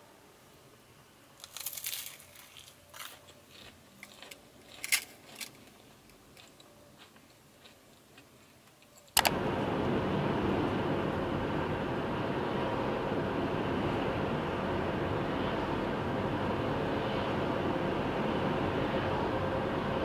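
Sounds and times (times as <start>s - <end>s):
crunching and chewing: 1.4s - 9.2s
car road and engine noise: 9.2s - 20.0s.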